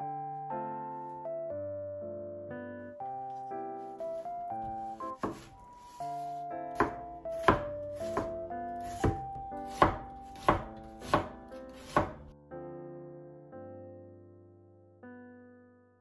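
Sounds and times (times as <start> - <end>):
light piano music: 0.0 - 16.0
knife knocking on cutting board: 5.2 - 5.5, 6.8 - 12.2.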